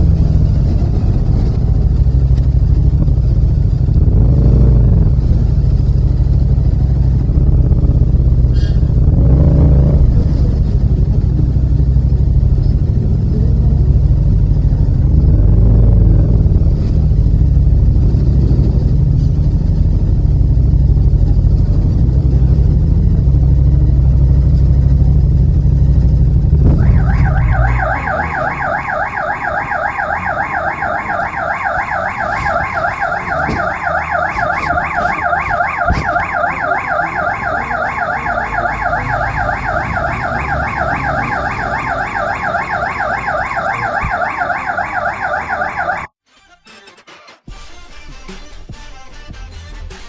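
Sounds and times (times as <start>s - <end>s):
vehicle alarm warbling: 26.6s - 46.1s.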